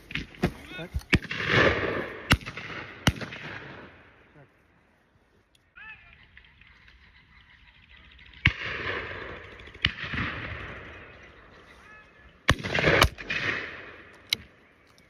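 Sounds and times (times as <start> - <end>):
shotgun shots with echo: 1.1 - 4.0, 8.4 - 11.1, 12.5 - 14.1.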